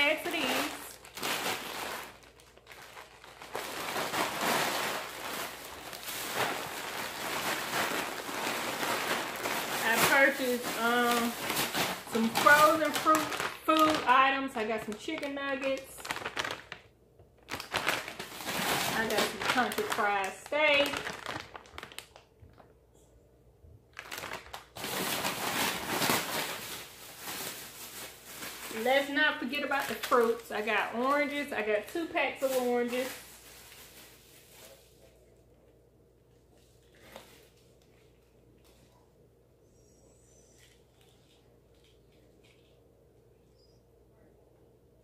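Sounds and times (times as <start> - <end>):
plastic packaging rustling: 0.0 - 22.7, 23.9 - 35.2.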